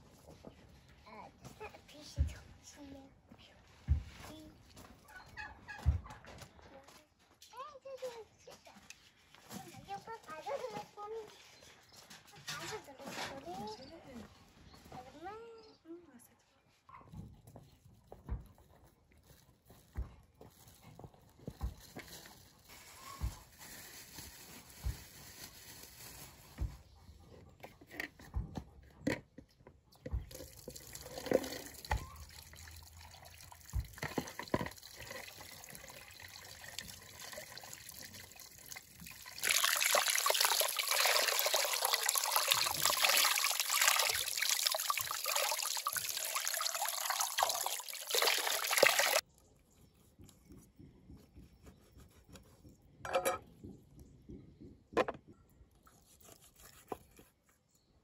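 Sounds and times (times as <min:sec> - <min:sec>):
tap water splashing into bowl: 0:30.3 - 0:49.2.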